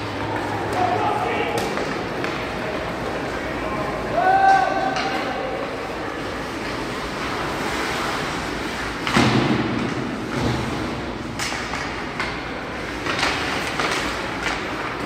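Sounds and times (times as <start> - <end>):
puck and players hitting boards: 0.0 - 5.8, 8.9 - 15.0
arena noise: 0.0 - 15.0.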